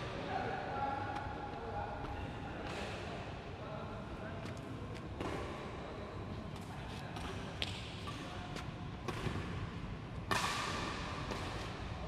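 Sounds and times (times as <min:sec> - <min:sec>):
rackets hitting shuttlecocks: 0:10.2 - 0:11.8.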